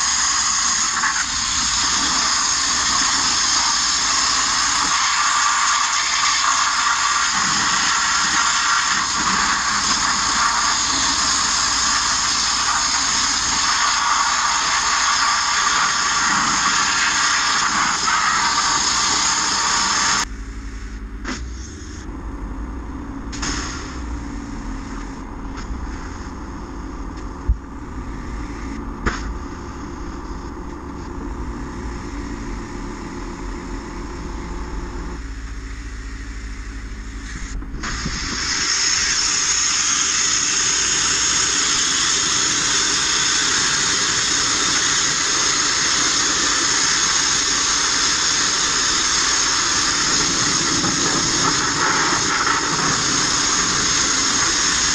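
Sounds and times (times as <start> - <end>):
abrasive blasting hiss: 0.0 - 22.0, 23.3 - 54.9
low rumble: 20.2 - 39.0.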